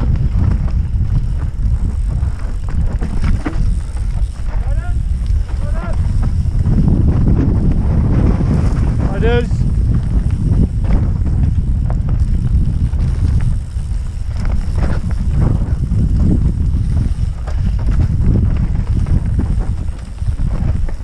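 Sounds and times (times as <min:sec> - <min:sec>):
bike knocks and rattles: 0:00.0 - 0:21.0
tyres rumbling on dirt: 0:00.0 - 0:21.0
wind buffeting microphone: 0:00.0 - 0:21.0.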